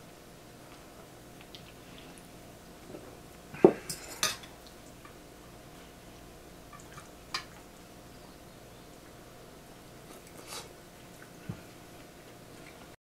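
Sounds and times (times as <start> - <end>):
cutlery clinking: 3.7 - 4.5.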